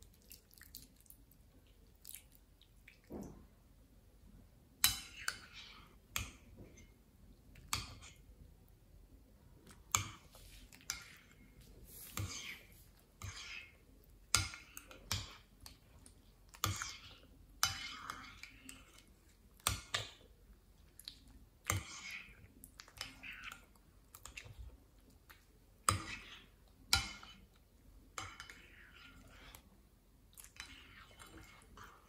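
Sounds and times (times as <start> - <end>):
spoon stirring in glass bowl: 4.8 - 8.4, 9.6 - 20.3, 21.6 - 29.8, 30.4 - 32.0.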